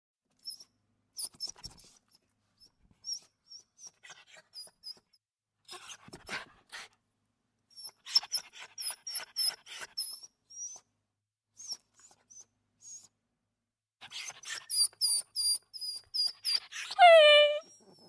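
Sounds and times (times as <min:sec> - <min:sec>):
high squeaks: 0:17.0 - 0:17.6.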